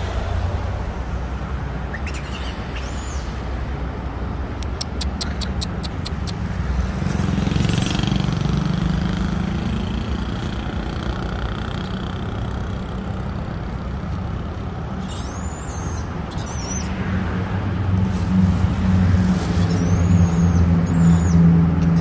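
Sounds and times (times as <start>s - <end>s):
road traffic rumble: 0.0s - 22.0s
short high squeaks: 15.0s - 16.9s.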